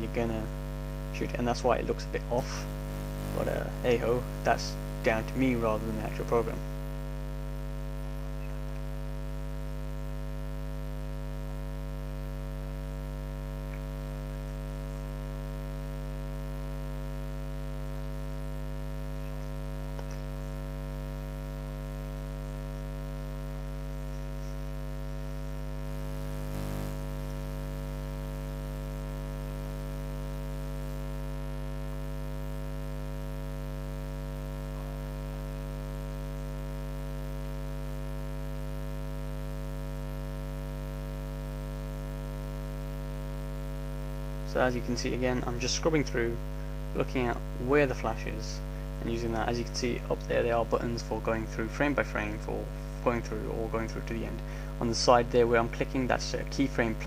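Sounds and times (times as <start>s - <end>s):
electrical mains hum: 0.0s - 57.0s.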